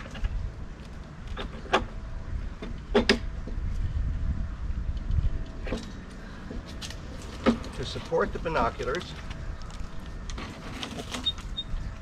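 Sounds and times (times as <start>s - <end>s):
sharp knocks and clicks of parts: 0.0s - 2.0s, 2.6s - 3.6s, 4.9s - 11.5s
wind rumble on microphone: 0.0s - 12.0s.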